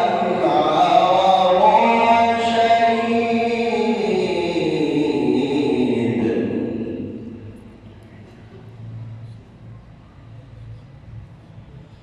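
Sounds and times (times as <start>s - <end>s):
man reciting melodically: 0.0s - 7.4s.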